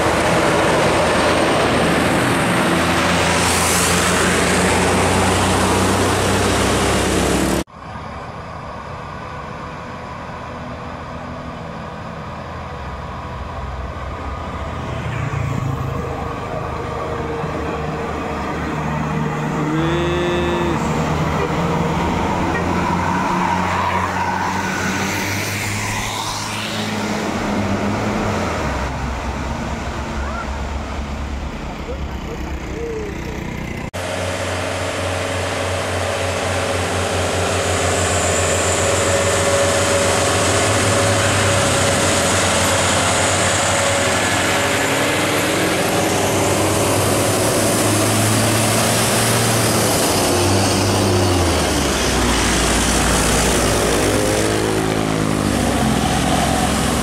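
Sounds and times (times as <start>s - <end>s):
roadside traffic: 0.0s - 57.0s
short pitched tone: 19.7s - 21.0s.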